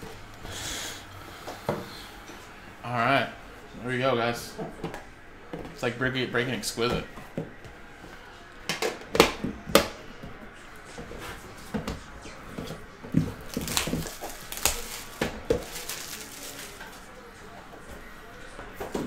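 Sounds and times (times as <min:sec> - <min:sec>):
plastic wrap rustling: 0:12.6 - 0:17.2.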